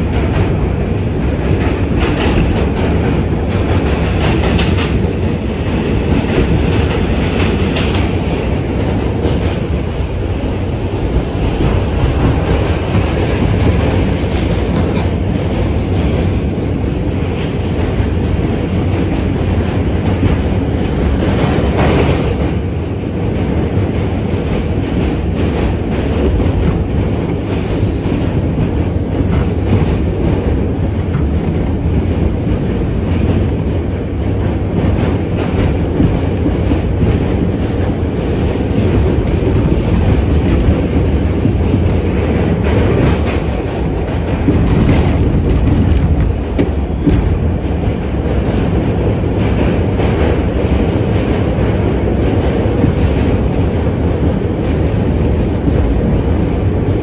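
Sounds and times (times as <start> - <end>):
rumble of train wheels on rail: 0.0 - 57.0
wheels clicking over rail joints: 23.7 - 56.5.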